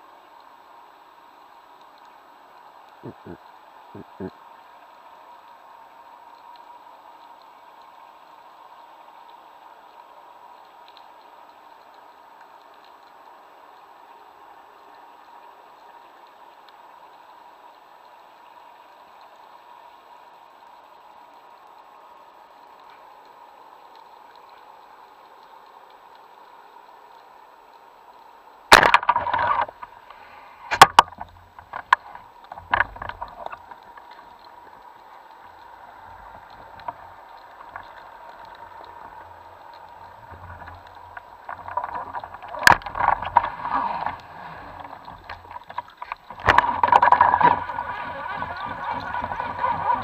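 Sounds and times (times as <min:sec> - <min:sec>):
underwater hiss and hum: 0:00.0 - 0:50.0
diving gear clicks and knocks: 0:28.7 - 0:34.9, 0:36.1 - 0:50.0
churning water rushes: 0:28.7 - 0:50.0.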